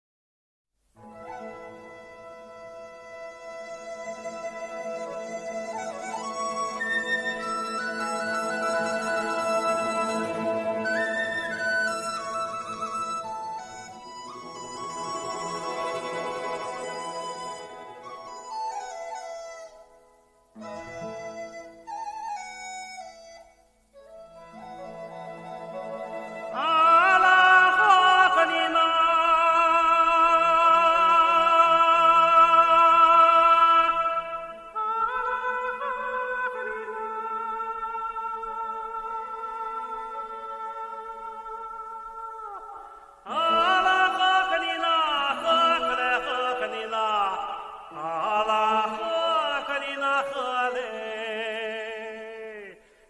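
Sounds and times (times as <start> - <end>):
man singing a long note: 26.5 - 52.8.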